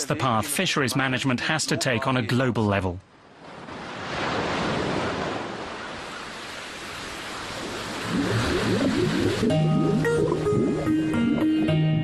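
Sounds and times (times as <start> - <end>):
ocean waves rushing: 3.1 - 10.9.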